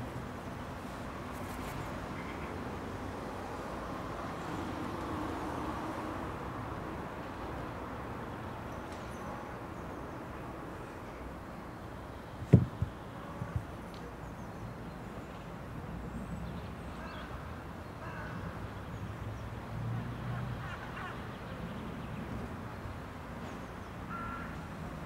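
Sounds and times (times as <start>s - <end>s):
sharp thump: 12.4s - 13.6s
soft knocks: 12.4s - 13.7s
crows cawing: 18.0s - 18.4s, 24.1s - 24.6s.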